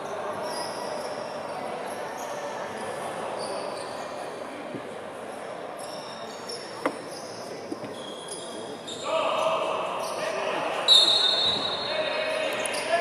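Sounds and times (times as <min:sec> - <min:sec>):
gym background noise: 0:00.0 - 0:13.0
shoes squeaking on wooden court: 0:05.8 - 0:09.1, 0:10.0 - 0:13.0.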